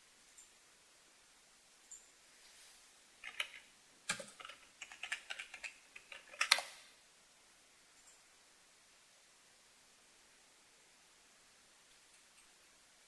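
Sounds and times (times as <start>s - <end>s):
keyboard key clicks: 3.2s - 6.8s.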